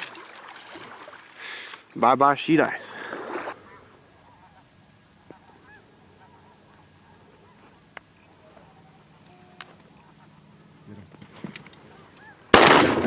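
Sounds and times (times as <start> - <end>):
low steady background hum: 0.0 - 13.0
distant waterfowl calling: 3.0 - 11.2, 11.8 - 12.6.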